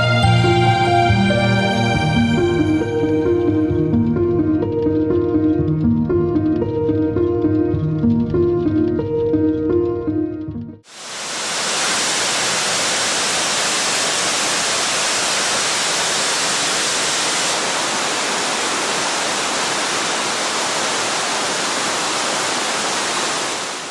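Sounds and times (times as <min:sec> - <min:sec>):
waterfall rushing: 0:10.9 - 0:23.9.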